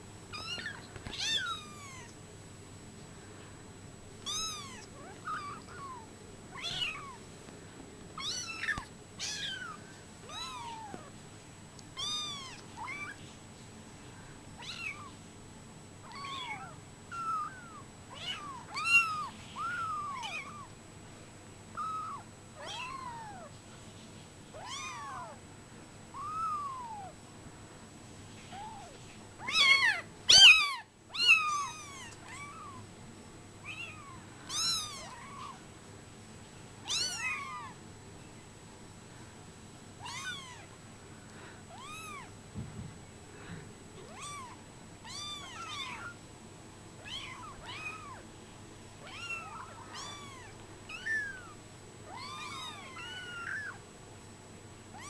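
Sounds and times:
kittens mewing: 0:00.4 - 0:02.2, 0:04.2 - 0:07.2, 0:28.5 - 0:32.8, 0:33.6 - 0:35.6, 0:40.0 - 0:40.8, 0:47.0 - 0:48.2, 0:49.0 - 0:53.8.

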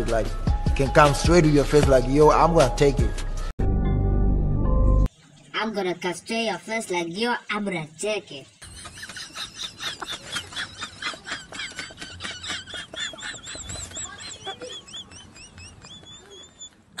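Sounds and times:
man cackling: 0:08.7 - 0:16.5.

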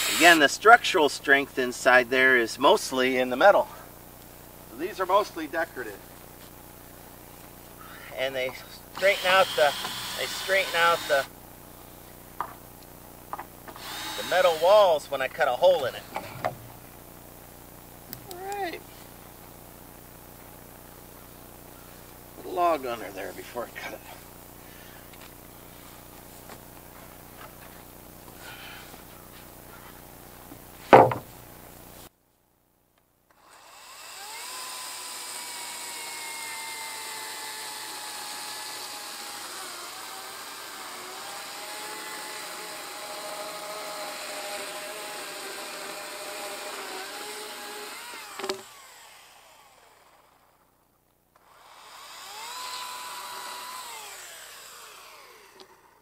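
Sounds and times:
chainsaw cutting wood: 0:00.0 - 0:00.4, 0:08.9 - 0:11.3, 0:13.6 - 0:15.0, 0:33.3 - 0:50.7, 0:51.4 - 0:56.0.

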